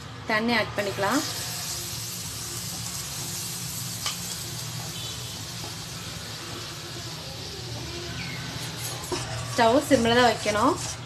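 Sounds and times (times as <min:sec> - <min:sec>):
sugar sizzling in a frying pan: 0:00.8 - 0:11.0.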